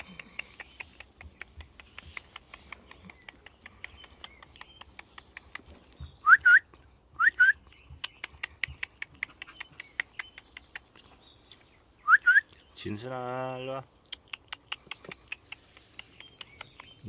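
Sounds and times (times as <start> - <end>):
high whistle-like calls: 6.2 - 7.6, 12.0 - 12.5.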